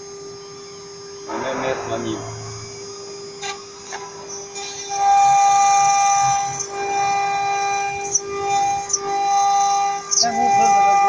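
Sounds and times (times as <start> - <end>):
router spindle high-pitched whine: 0.0 - 11.0.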